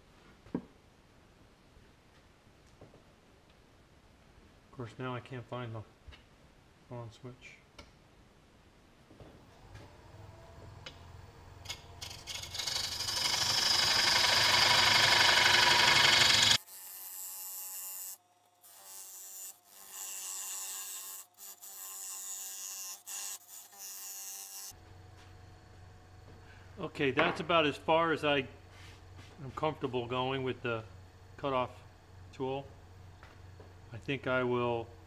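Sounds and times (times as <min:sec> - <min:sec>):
lathe motor whine: 0:09.6 - 0:16.6
tool cutting spinning wood: 0:09.8 - 0:24.8.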